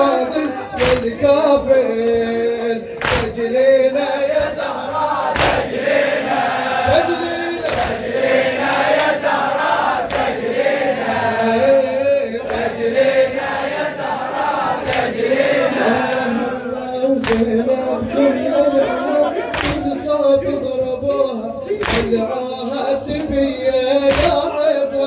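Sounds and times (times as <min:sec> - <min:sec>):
crowd chanting: 0:00.0 - 0:25.0
hand slaps on chest: 0:00.8 - 0:01.1, 0:03.0 - 0:03.4, 0:05.3 - 0:05.7, 0:17.2 - 0:17.5, 0:19.6 - 0:19.9, 0:21.8 - 0:22.1, 0:24.1 - 0:24.4.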